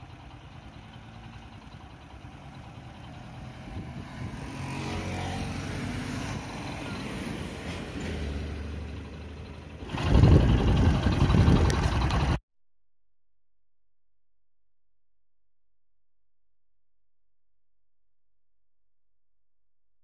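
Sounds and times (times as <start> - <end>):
traffic noise: 0.0 - 12.4
vehicle engines humming: 0.0 - 12.4
loud rough low rumble: 8.6 - 12.4.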